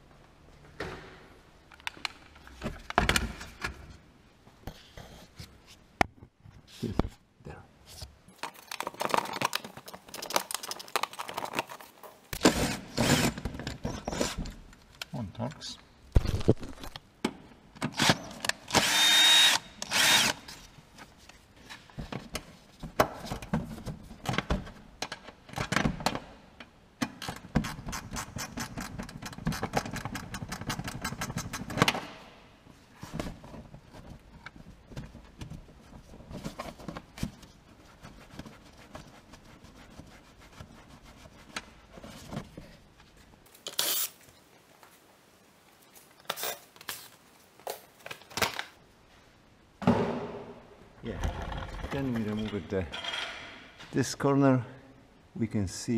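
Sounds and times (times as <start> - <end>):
cordless drill motor: 18.0 - 20.4.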